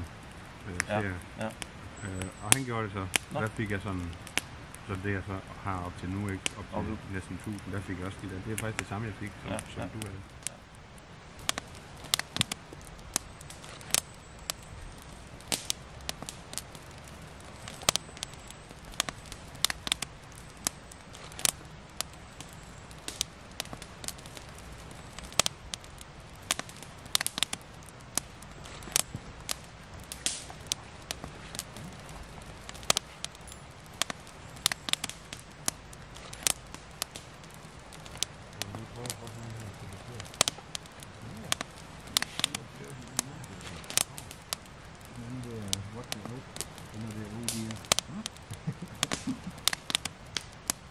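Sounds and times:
campfire crackling and popping: 0.0s - 50.9s.

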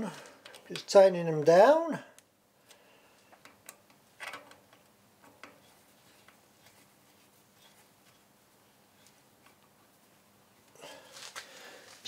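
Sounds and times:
faint metallic clicks and taps: 2.2s - 6.9s.

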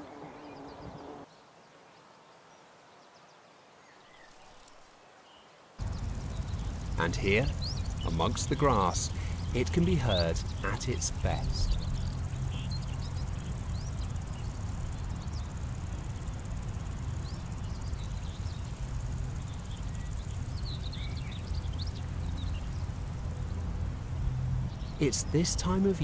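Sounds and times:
very high insect buzzing: 0.0s - 1.2s, 5.8s - 23.2s
grasshoppers and crickets buzzing: 4.2s - 5.0s, 5.8s - 26.0s
bird chirps: 5.8s - 23.6s
low rumble: 5.8s - 24.8s.

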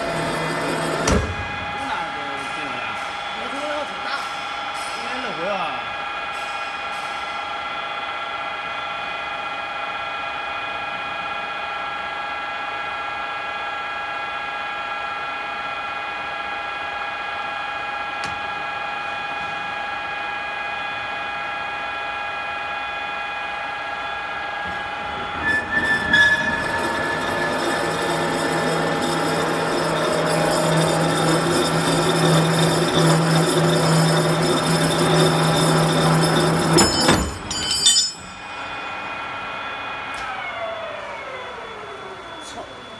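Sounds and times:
drilling machine whine: 0.0s - 14.7s, 15.3s - 42.9s
low hum: 24.1s - 42.9s.

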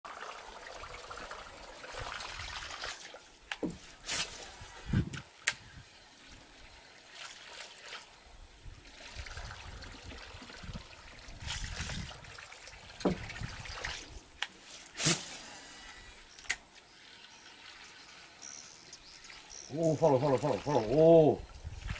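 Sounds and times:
topwater lure splashing and gurgling: 6.6s - 21.9s.

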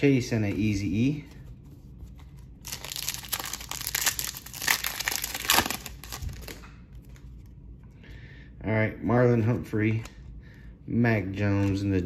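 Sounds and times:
foil wrapper tearing and crinkling: 2.6s - 6.6s.

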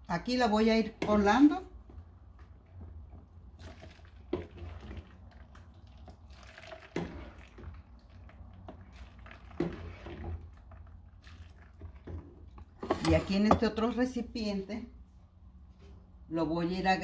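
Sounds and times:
water splashing through strainer: 3.5s - 12.1s
ladle clunking: 11.8s - 14.0s.

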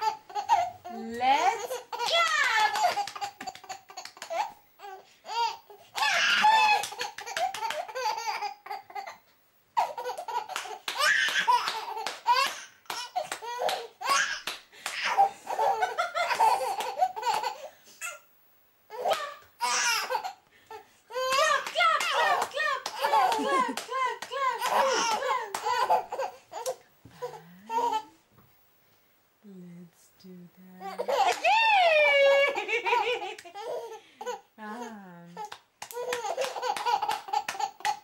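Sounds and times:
baby belly laughing: 0.0s - 9.2s, 9.8s - 18.2s, 21.1s - 28.1s, 30.9s - 31.6s, 32.2s - 34.5s, 35.4s - 38.0s
hands clapping: 2.0s - 4.4s, 6.0s - 7.9s, 10.2s - 15.2s, 16.3s - 17.5s, 19.1s - 19.4s, 21.3s - 26.0s, 31.3s - 31.6s, 33.3s - 33.5s, 35.4s - 38.0s.

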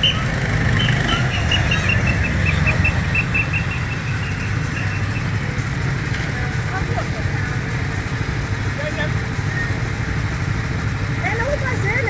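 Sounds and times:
fast high chirps: 0.0s - 5.4s
go-kart engines rumbling: 0.0s - 12.0s.

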